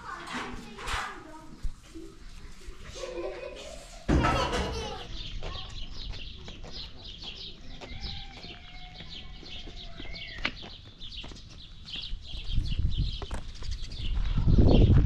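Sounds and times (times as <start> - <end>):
small birds chirping: 1.3 - 15.0
footsteps on dirt: 5.2 - 15.0.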